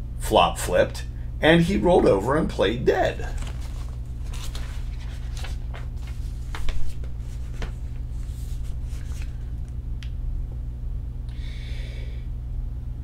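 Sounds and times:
steady low hum: 0.0s - 13.0s
book pages rustling: 3.2s - 9.5s.

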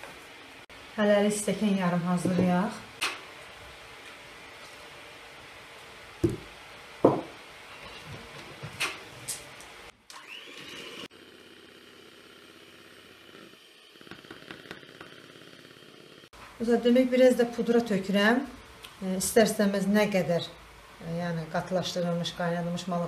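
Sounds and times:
sharp knocks: 6.2s - 7.3s.

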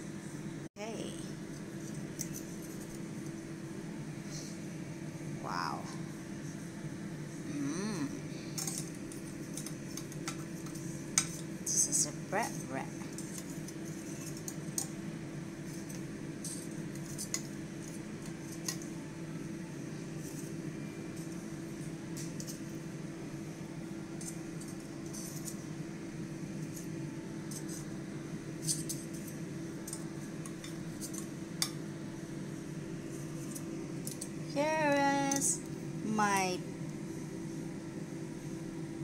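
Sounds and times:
metal tongs clinking on dish: 35.2s - 35.6s.

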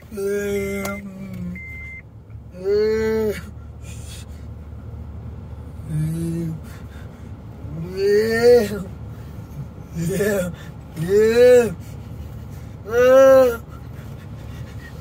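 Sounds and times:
short electronic beeps: 0.9s - 2.1s.

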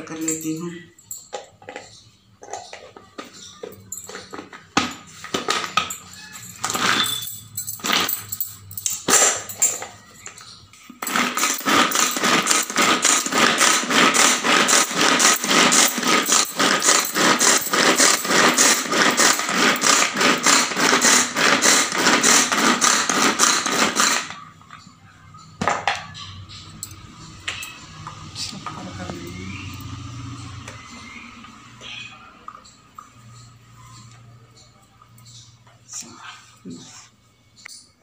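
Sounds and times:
manual food chopper rattling whirr: 0.0s - 24.8s.

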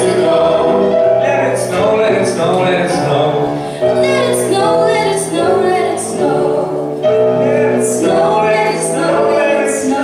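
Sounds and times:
man singing: 0.0s - 3.6s, 7.3s - 10.0s
woman singing: 3.8s - 10.0s.

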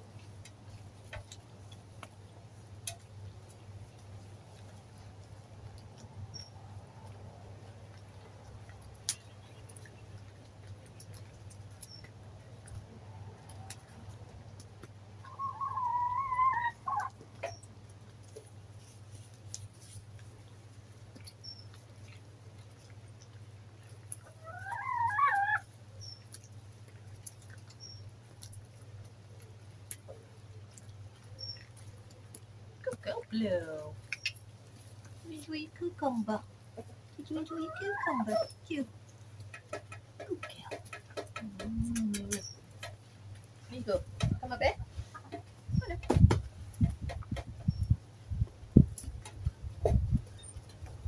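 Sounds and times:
low steady hum: 0.0s - 39.4s
hens calling: 12.6s - 17.7s, 23.8s - 25.7s, 36.6s - 43.0s.

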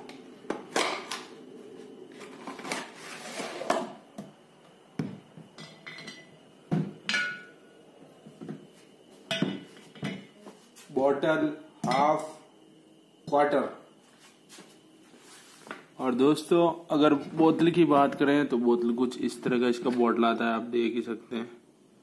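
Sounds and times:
glass bottle clink: 7.1s - 7.5s.

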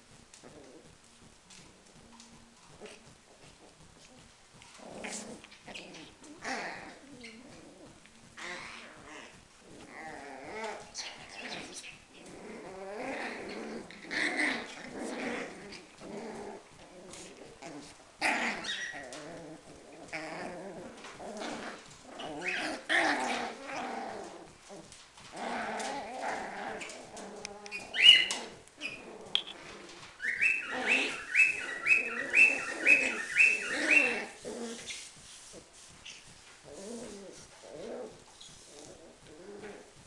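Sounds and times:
puppies growling: 0.0s - 35.7s, 36.6s - 40.0s
puppy yelps: 18.2s - 19.2s, 27.6s - 29.6s, 30.2s - 34.9s
high-pitched puppy yips: 27.8s - 29.5s.

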